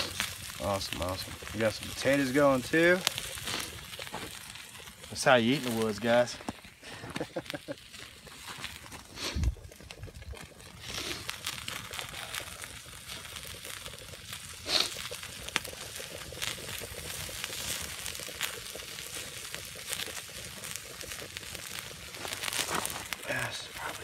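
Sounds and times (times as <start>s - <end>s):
campfire hissing and crackling: 0.0s - 24.0s
fire popping: 0.0s - 24.0s.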